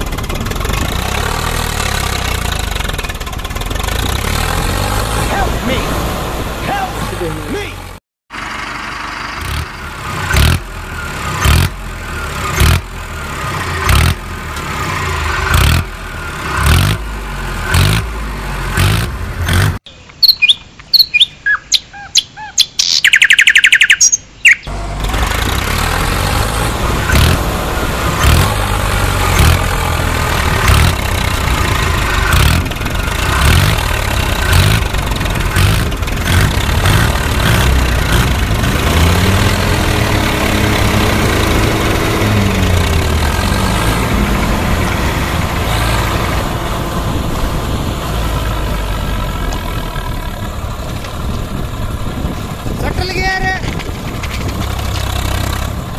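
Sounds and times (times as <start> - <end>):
tractor engine chugging: 0.0 - 5.6, 6.3 - 19.8, 23.2 - 55.9
high bird-like chirps: 19.8 - 24.7.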